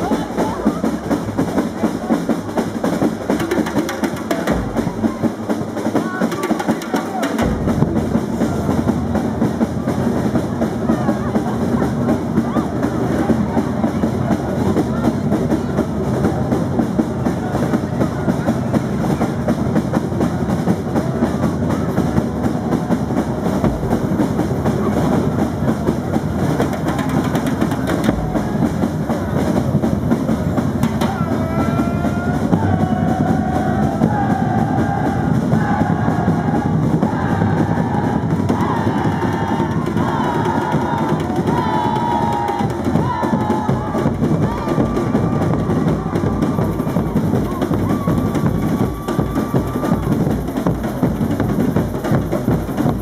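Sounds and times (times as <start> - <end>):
melodic line over drums: 0.0 - 10.9, 22.1 - 53.0
snare and bass drums playing: 0.0 - 53.0.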